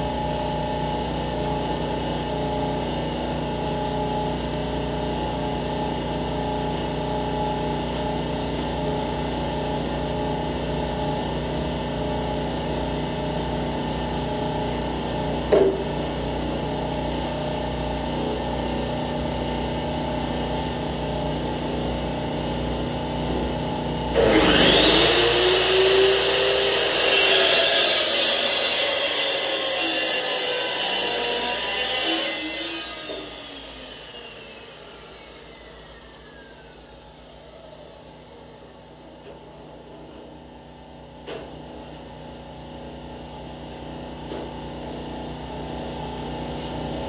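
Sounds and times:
steady mechanical hum: 0.0s - 47.0s
chop saw cutting steel: 24.1s - 37.0s.

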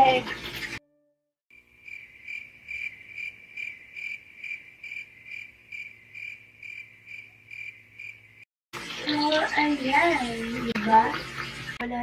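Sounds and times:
cricket chirping: 1.5s - 8.4s.

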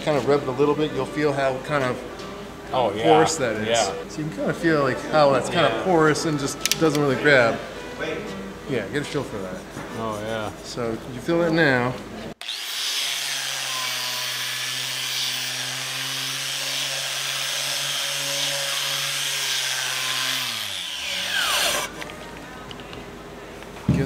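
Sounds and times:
angle grinder motor whine: 12.4s - 14.9s, 19.3s - 22.0s.

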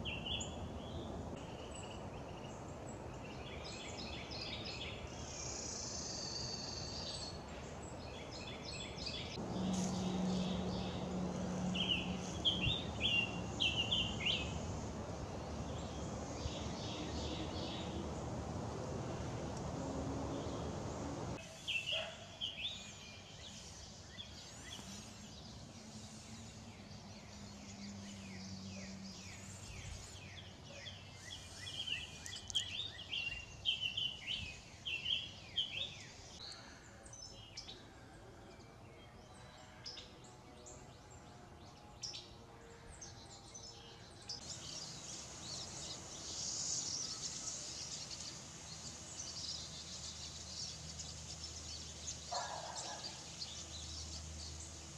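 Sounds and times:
songbirds chirping: 0.0s - 54.9s
high-pitched hiss: 22.7s - 30.3s, 44.5s - 52.2s.

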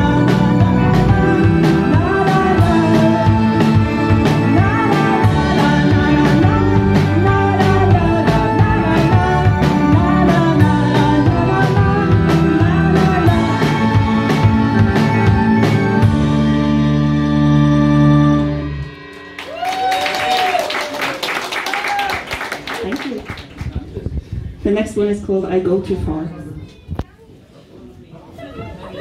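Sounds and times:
person singing: 0.0s - 15.9s
drum kit beat: 0.0s - 17.2s
keyboard: 0.0s - 20.6s
electric guitars: 0.0s - 21.6s
pop band playing: 0.0s - 22.0s.

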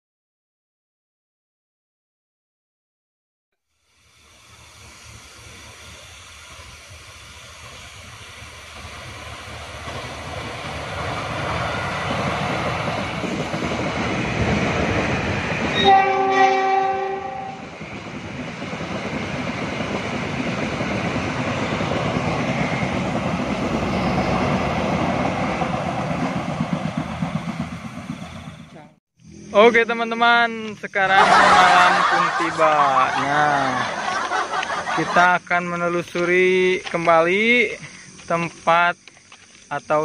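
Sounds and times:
passenger train passing: 3.9s - 39.1s
train horn: 15.7s - 17.6s.

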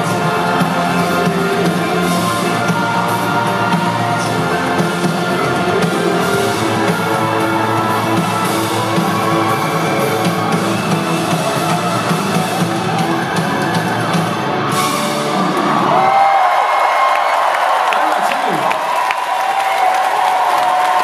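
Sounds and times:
live rock band playing: 0.0s - 16.2s.

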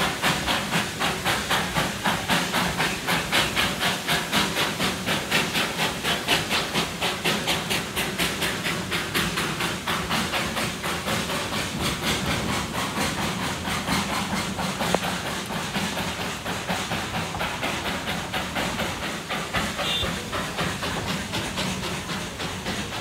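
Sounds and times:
steam locomotive chuffing: 0.0s - 23.0s.

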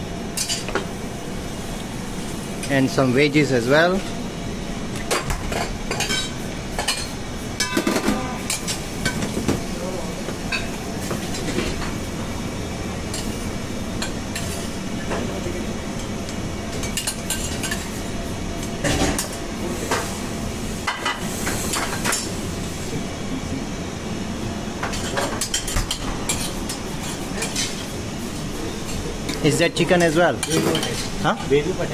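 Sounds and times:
ventilation hum: 0.0s - 31.9s
utensils and dishes clinking: 5.0s - 9.6s, 16.7s - 18.0s, 24.8s - 27.9s, 28.8s - 31.6s.

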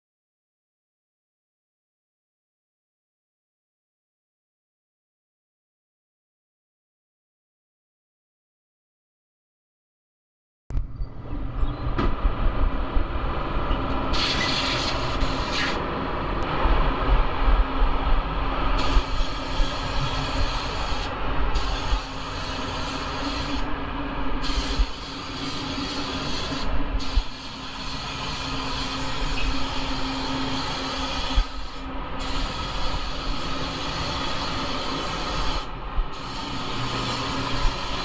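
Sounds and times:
steady low rumble: 10.7s - 38.0s
spray gun air hissing: 14.1s - 15.8s, 18.8s - 23.7s, 24.4s - 38.0s.

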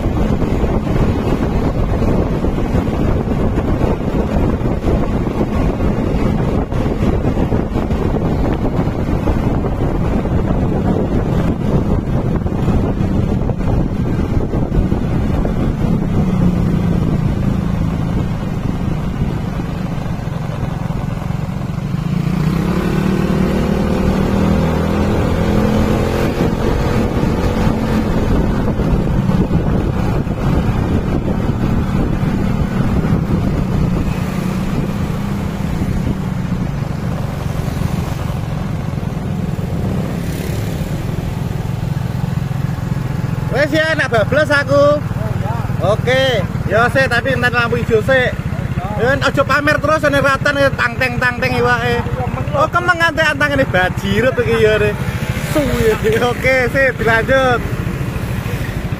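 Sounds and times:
motorcycle engine running: 0.0s - 58.9s
wind and road noise: 0.0s - 58.9s.

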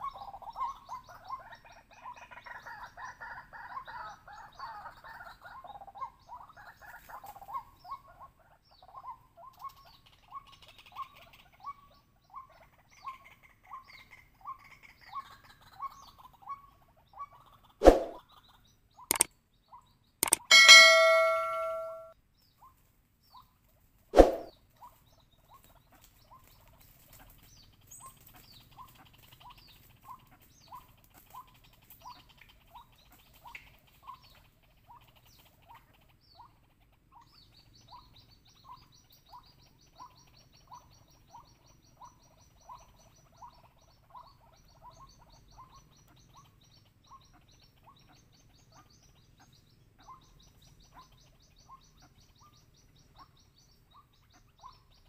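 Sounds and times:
bird repeating short note: 20.2s - 22.1s
fast high-pitched trill: 20.2s - 22.1s.

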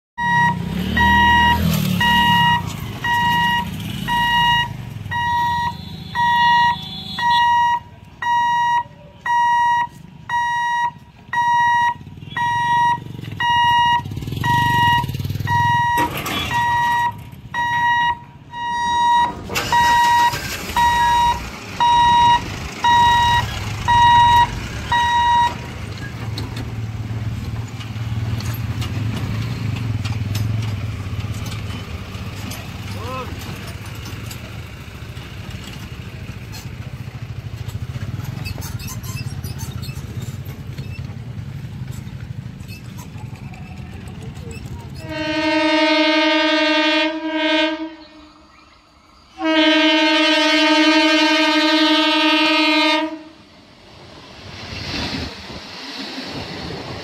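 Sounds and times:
level crossing warning beeps: 0.2s - 25.7s
motorcycle and truck engines: 0.2s - 57.0s.

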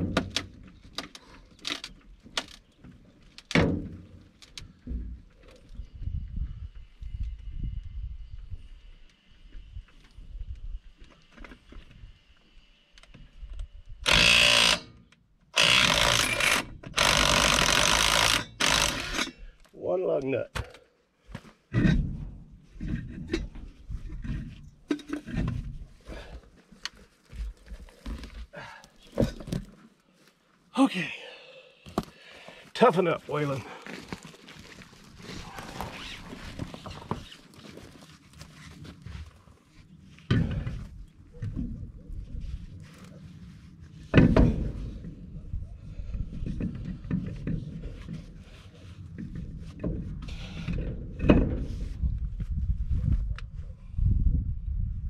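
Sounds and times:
impact wrench bursts: 14.0s - 14.9s, 15.6s - 19.4s.

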